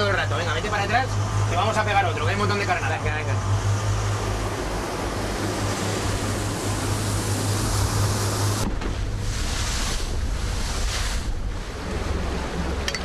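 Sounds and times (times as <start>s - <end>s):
boat engine droning: 0.0s - 13.0s
water wash: 0.0s - 13.0s
wind noise: 3.7s - 13.0s.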